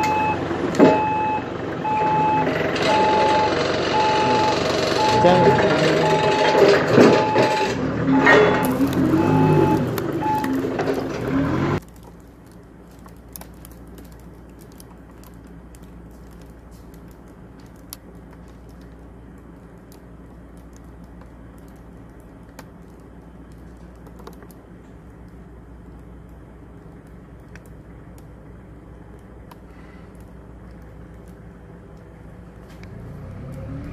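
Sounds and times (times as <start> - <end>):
beeping: 0.0 - 11.8
forklift running: 0.0 - 22.9, 23.5 - 33.9
quiet low hum: 6.9 - 33.9.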